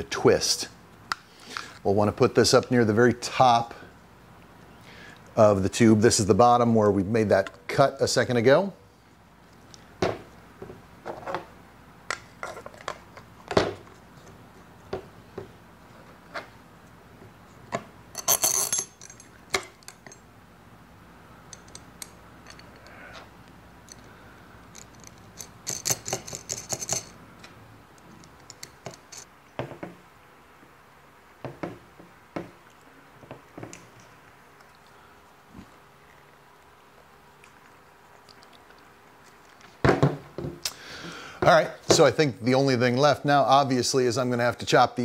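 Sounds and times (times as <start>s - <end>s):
clicks and knocks of metal parts: 17.7s - 20.2s, 21.5s - 23.0s, 24.7s - 29.9s
metallic clinking and jingling: 18.1s - 20.3s, 24.7s - 27.2s.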